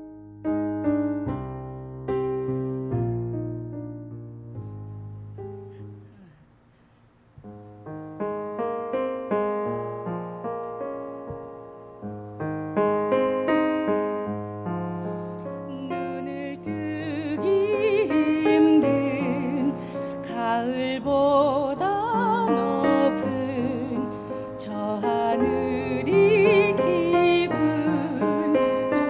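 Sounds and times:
piano music: 0:00.0 - 0:06.3, 0:07.4 - 0:29.0
person singing with vibrato: 0:15.6 - 0:29.0.

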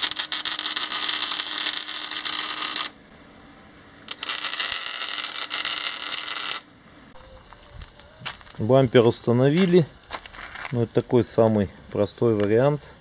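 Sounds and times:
arc welding crackling: 0:00.0 - 0:03.0, 0:03.8 - 0:06.7, 0:07.4 - 0:13.0.

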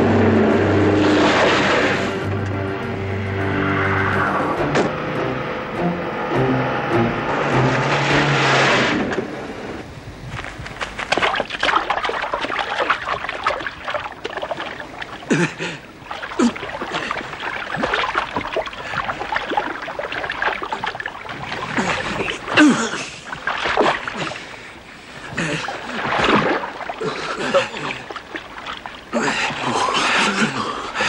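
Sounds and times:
water splashing: 0:00.0 - 0:05.0, 0:06.9 - 0:31.0.

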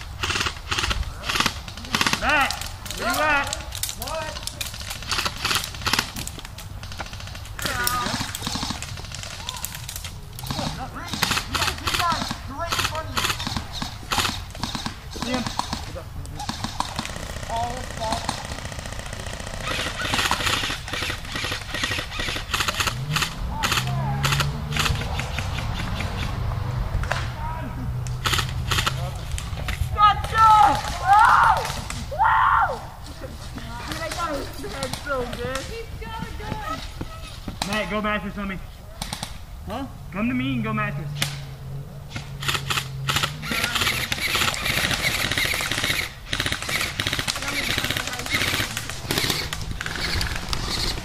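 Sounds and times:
airsoft guns firing bursts: 0:00.0 - 0:09.6, 0:10.4 - 0:26.3, 0:33.8 - 0:36.8, 0:42.4 - 0:51.0.

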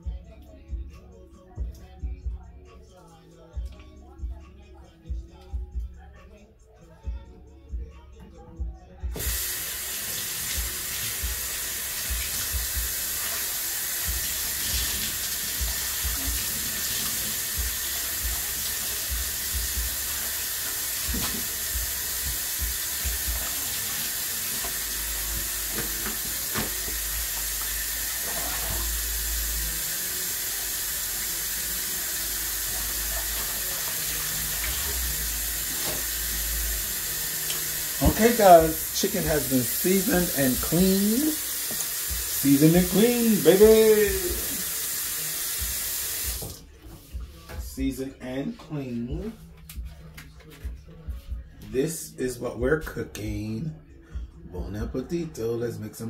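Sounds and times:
faucet running into steel sink: 0:09.2 - 0:46.6.

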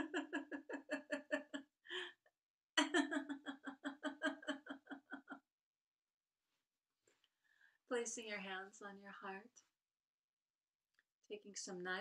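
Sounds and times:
woman laughing rhythmically: 0:00.0 - 0:02.2, 0:02.8 - 0:05.4.

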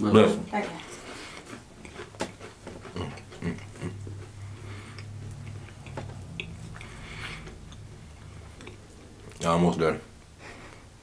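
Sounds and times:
low steady hum: 0:00.0 - 0:11.0
crackers being chewed: 0:00.8 - 0:09.5.

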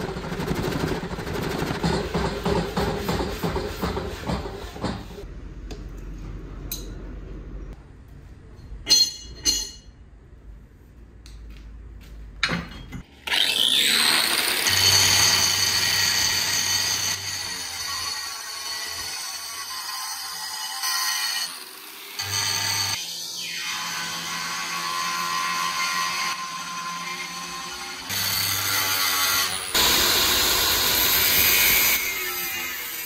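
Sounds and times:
sharp metal clanks: 0:08.8 - 0:10.0
angle grinder cutting steel: 0:13.2 - 0:33.0.

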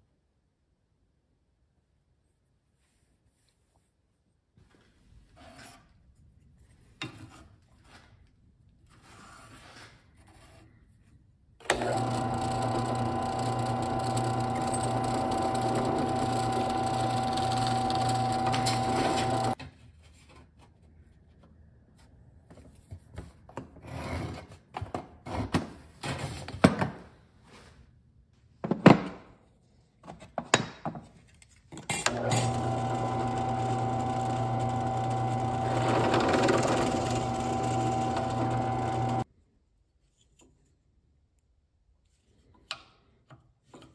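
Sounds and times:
drill press motor humming: 0:11.6 - 0:19.6, 0:32.1 - 0:39.2
drill bit drilling wood: 0:11.7 - 0:19.6, 0:32.1 - 0:39.2.

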